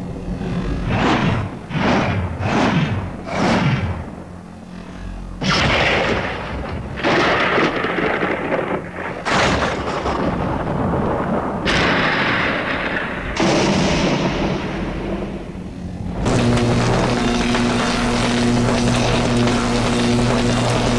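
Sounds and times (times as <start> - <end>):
lightsaber swing whooshes: 0.0 - 6.3
lightsaber low hum: 0.0 - 20.9
thunder-crack clash sounds: 5.4 - 19.6.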